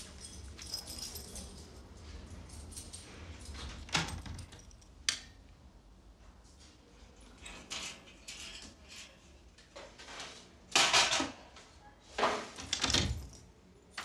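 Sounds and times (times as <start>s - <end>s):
keys jangling in a lock: 0.0s - 5.4s, 7.2s - 9.2s, 12.7s - 13.6s.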